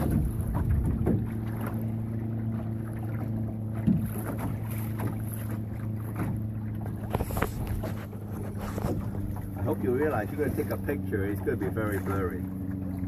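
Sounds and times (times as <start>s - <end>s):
wind on microphone: 0.0s - 1.6s, 7.0s - 9.8s
waves lapping against hull: 0.0s - 13.0s
short thump: 6.2s - 9.4s.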